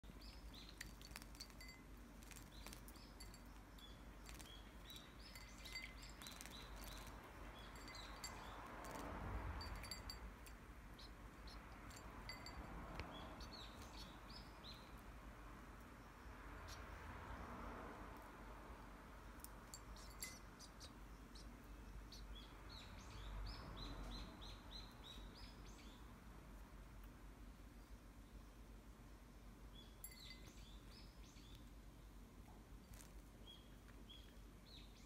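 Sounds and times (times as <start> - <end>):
fledgling birds chirping: 0.0 - 8.9, 10.9 - 15.1, 19.8 - 26.1.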